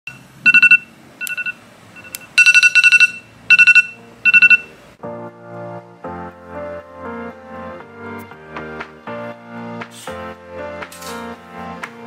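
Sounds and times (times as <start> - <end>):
phone alarm beeping: 0.0 - 4.8.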